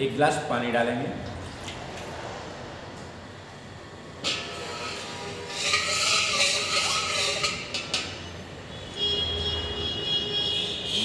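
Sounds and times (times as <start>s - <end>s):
steel spatula scraping metal pan: 4.2s - 8.5s.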